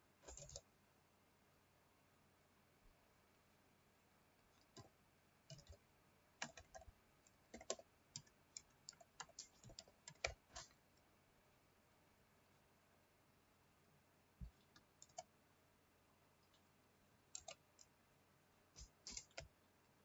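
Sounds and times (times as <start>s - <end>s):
keyboard typing: 0.2s - 0.7s, 4.4s - 10.8s, 14.4s - 15.4s, 16.4s - 18.0s, 18.8s - 19.6s
scattered clicks: 0.2s - 0.7s, 4.6s - 5.8s, 6.4s - 11.1s, 14.4s - 15.3s, 17.3s - 18.0s, 18.8s - 19.6s.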